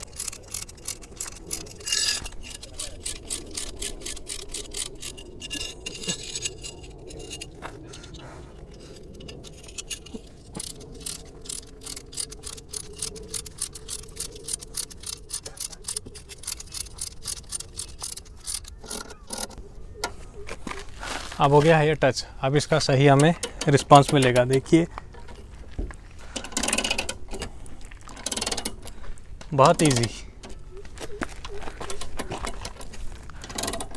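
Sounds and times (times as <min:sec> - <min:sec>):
ratcheting jack wrench clicking: 0:00.0 - 0:07.6, 0:08.8 - 0:19.6, 0:23.1 - 0:24.7, 0:26.3 - 0:27.5, 0:28.1 - 0:28.9, 0:31.9 - 0:33.9.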